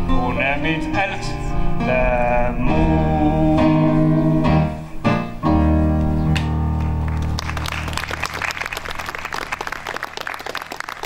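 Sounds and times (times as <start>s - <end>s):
piano-led band playing: 0.0s - 10.7s
audience applause: 7.0s - 11.0s.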